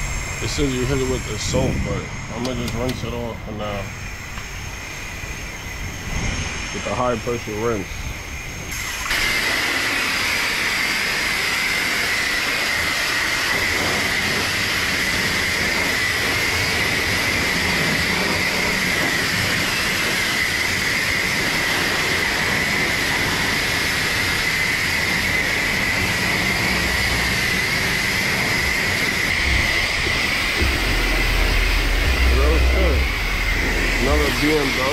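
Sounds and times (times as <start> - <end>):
pressure washer spraying water: 8.7 - 34.9.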